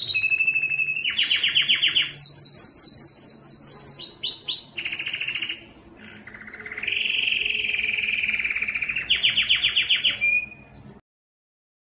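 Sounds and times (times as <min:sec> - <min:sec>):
canary singing: 0:00.0 - 0:11.0.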